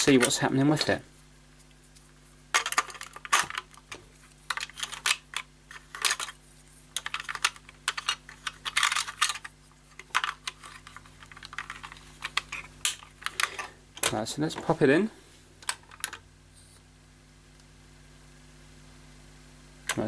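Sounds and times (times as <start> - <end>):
plastic toy clicks and rattles: 4.5 - 6.4, 7.0 - 13.7.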